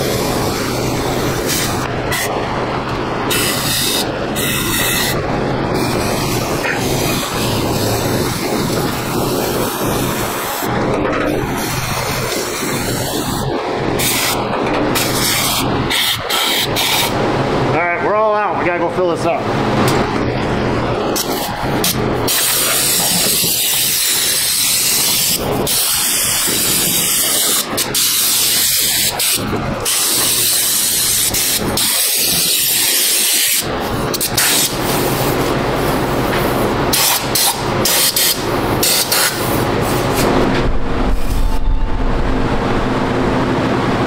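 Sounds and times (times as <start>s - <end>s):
fans humming: 0.0s - 44.0s
spray gun hissing: 21.2s - 33.6s.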